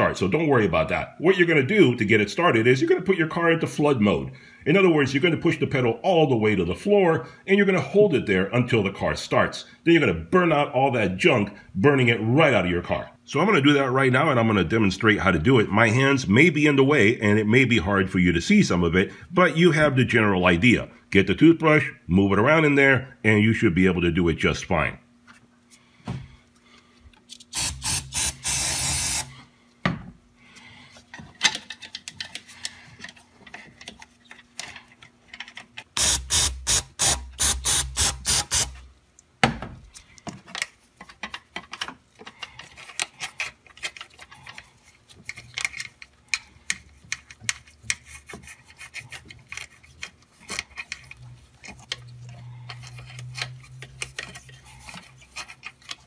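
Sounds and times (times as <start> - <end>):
toothbrush scrubbing metal: 42.5 - 56.0.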